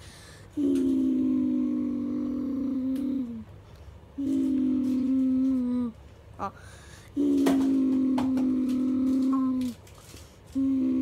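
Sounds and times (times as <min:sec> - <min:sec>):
boy imitating creature call: 0:00.6 - 0:03.5, 0:04.2 - 0:06.6, 0:07.2 - 0:09.8, 0:10.6 - 0:11.0.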